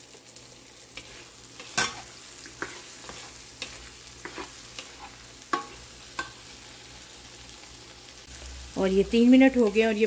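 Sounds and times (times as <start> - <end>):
faint frying sizzle: 0.0 - 10.0
spoon scraping a pan: 0.9 - 6.6.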